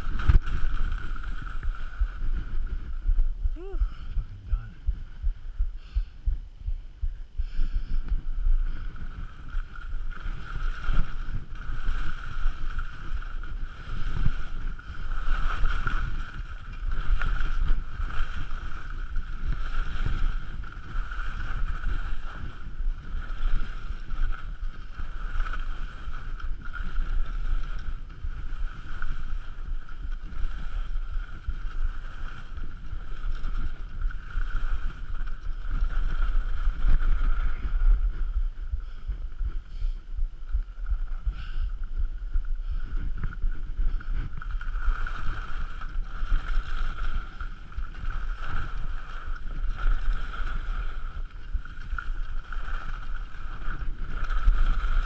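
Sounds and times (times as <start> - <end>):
wind buffeting microphone: 0.0 - 55.0
skis hissing over snow: 8.6 - 37.9, 42.7 - 55.0.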